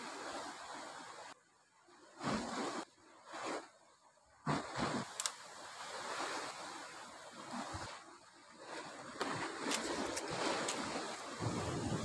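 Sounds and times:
sea waves washing over rocks: 0:04.4 - 0:12.0.

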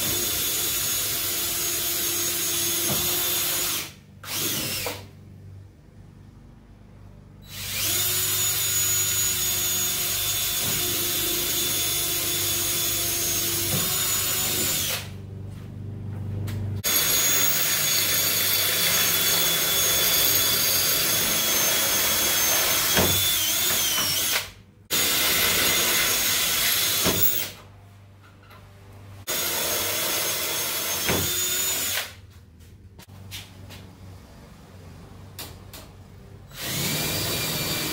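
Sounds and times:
power drill whining: 0:00.0 - 0:05.1, 0:07.4 - 0:15.1, 0:16.8 - 0:27.6, 0:29.3 - 0:32.2, 0:36.5 - 0:37.9.

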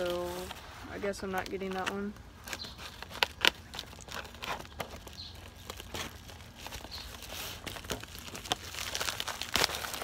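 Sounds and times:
plastic mailer tearing and crinkling: 0:00.0 - 0:10.0
loud crackle: 0:03.2 - 0:10.0.

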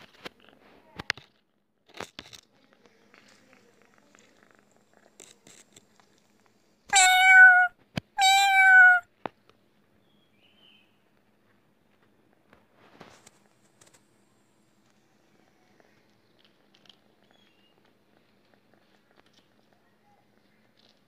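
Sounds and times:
cat meowing: 0:06.9 - 0:09.0.

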